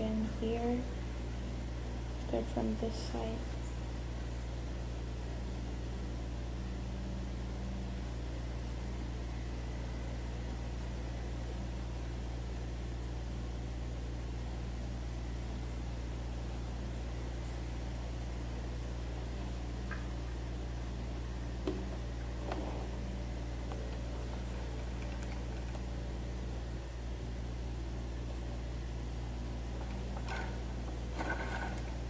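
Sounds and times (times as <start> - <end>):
electric fan humming: 0.0 - 32.0.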